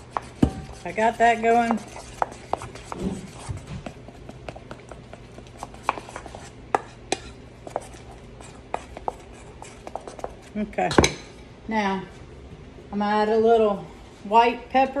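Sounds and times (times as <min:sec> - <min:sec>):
utensil scraping a metal bowl: 0:00.0 - 0:03.6.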